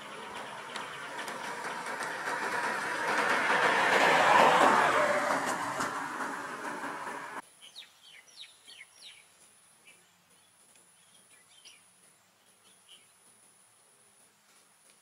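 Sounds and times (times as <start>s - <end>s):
birds chirping: 0.0s - 3.3s
loud rushing noise: 0.0s - 7.4s.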